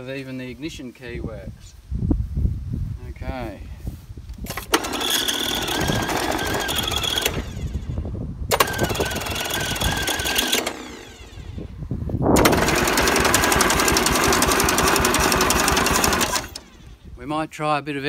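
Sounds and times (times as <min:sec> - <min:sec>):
diesel engine starter cranking: 0:04.4 - 0:11.8, 0:12.4 - 0:17.0.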